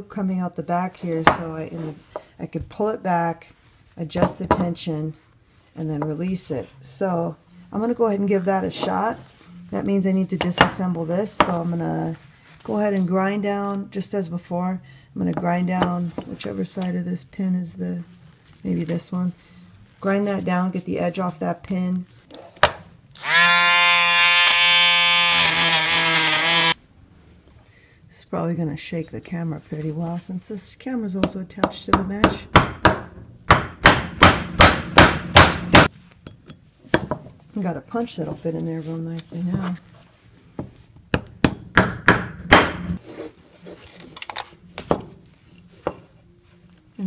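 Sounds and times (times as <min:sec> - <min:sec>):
rotary tool sanding drum whine: 0:23.7 - 0:26.8
hammer striking steel punch: 0:32.2 - 0:35.9.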